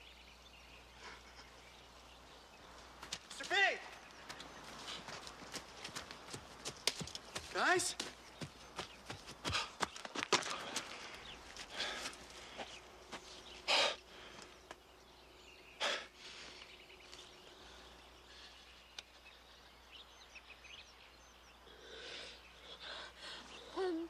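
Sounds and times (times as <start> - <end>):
faint bird chirps: 0.0 - 5.3, 11.1 - 24.0.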